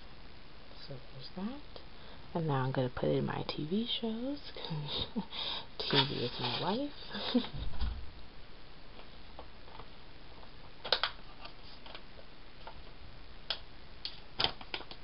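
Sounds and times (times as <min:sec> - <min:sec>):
paper and stickers handled: 0:05.8 - 0:07.5.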